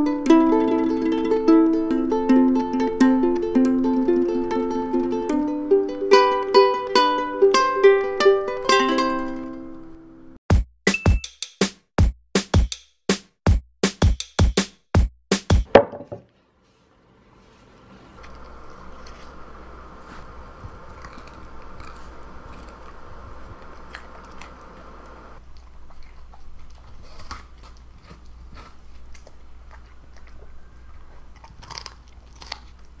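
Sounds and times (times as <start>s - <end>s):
dog crunching carrot and apple: 18.2s - 33.0s.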